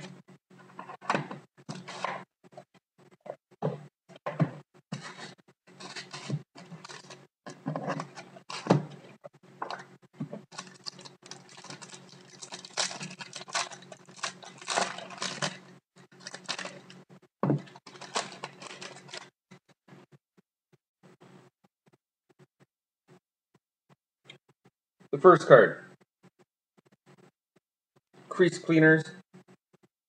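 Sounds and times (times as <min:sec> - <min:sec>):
foil card pack crinkling: 0:05.8 - 0:07.2, 0:10.5 - 0:17.0, 0:17.6 - 0:19.3.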